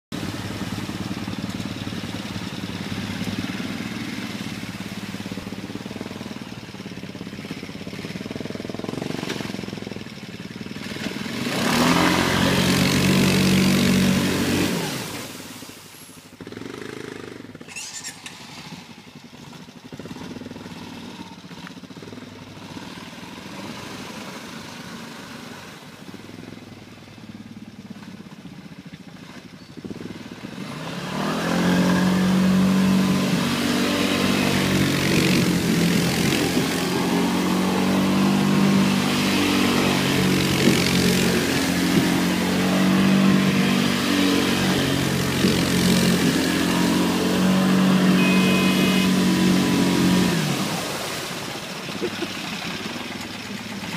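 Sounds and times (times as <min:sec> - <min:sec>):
water splashing: 0:00.1 - 0:07.6, 0:11.8 - 0:16.4, 0:28.0 - 0:53.9
quad bike engine running: 0:00.1 - 0:53.9.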